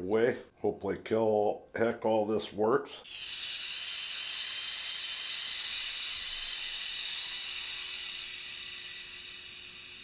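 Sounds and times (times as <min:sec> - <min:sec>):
gas hissing from pistol: 0:03.1 - 0:10.0.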